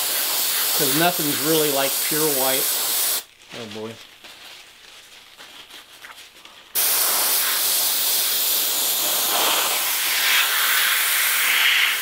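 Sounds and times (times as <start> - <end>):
airbrush hissing: 0.0 - 3.3, 6.7 - 12.0.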